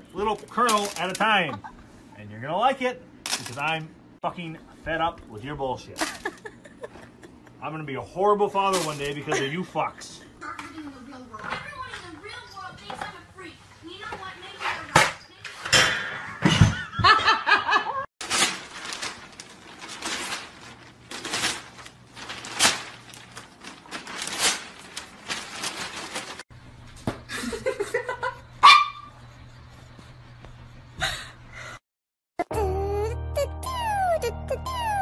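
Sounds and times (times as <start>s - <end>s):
people laughing: 6.0s - 7.6s.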